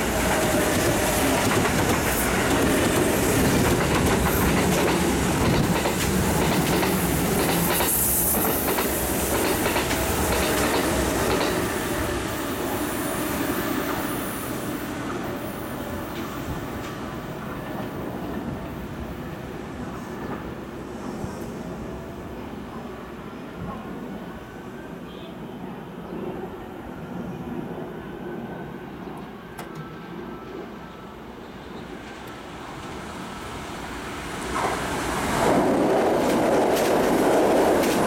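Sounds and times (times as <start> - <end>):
train wheels rumbling on rails: 0.0 - 22.1, 32.0 - 38.0.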